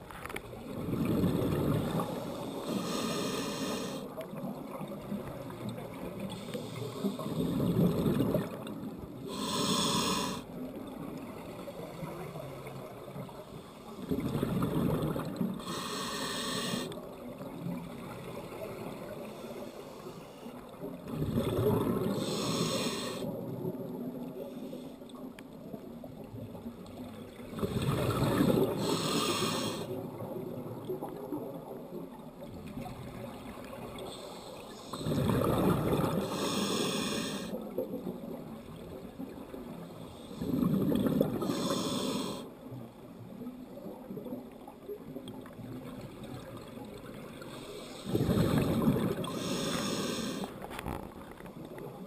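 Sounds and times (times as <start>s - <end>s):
gurgling exhaled bubbles: 0.5s - 2.8s, 7.0s - 9.3s, 14.0s - 15.6s, 21.0s - 22.5s, 27.4s - 31.9s, 34.9s - 36.6s, 37.6s - 42.4s, 48.1s - 52.0s
hissing regulator inhale: 2.1s - 4.1s, 6.3s - 7.6s, 9.2s - 10.5s, 15.6s - 17.0s, 19.2s - 20.6s, 22.1s - 23.3s, 28.7s - 30.0s, 34.1s - 35.3s, 36.1s - 37.6s, 41.3s - 42.5s, 47.5s - 50.6s.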